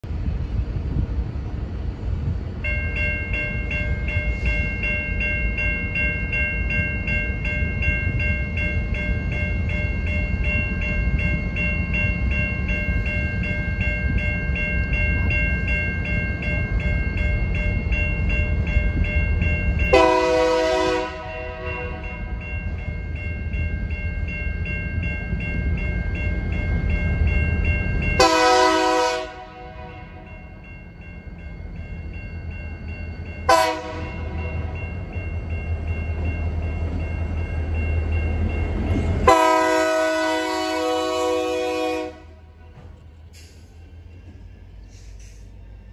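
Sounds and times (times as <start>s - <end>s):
locomotive horn blasts: 19.9s - 22.2s, 28.2s - 30.3s, 33.5s - 34.3s, 39.2s - 42.6s.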